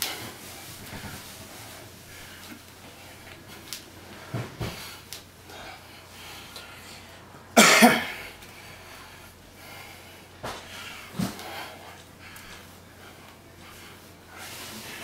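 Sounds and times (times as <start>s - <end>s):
man coughing: 7.6s - 8.3s.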